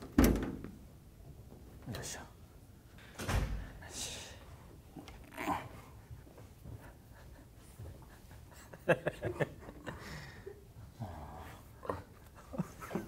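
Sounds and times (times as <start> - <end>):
man laughing: 7.0 - 10.6, 12.2 - 13.0.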